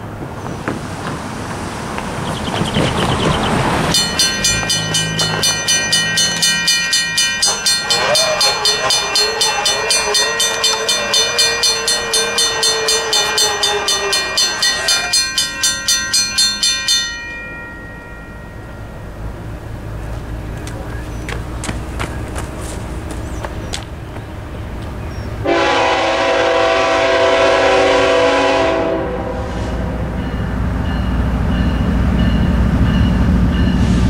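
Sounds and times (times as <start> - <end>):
mechanical crossing bell striking: 3.9 - 19.4
wavering tone: 3.9 - 19.4
electronic bell: 4.0 - 19.2.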